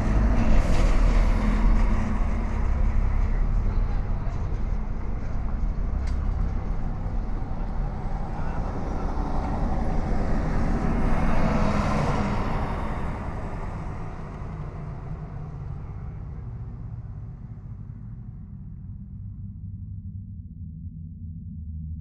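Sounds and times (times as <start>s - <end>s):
vehicle passing: 0.0s - 17.4s
steady low traffic rumble: 0.0s - 21.5s.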